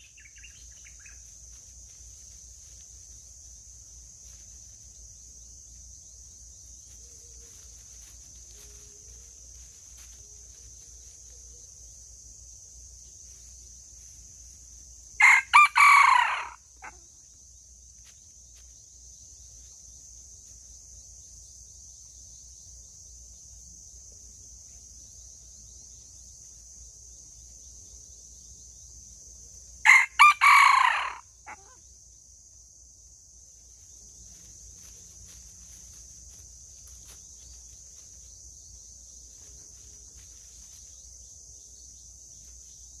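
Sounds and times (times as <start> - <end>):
high insect drone: 0.0 - 43.0
rooster crowing: 15.2 - 17.0, 29.8 - 31.8.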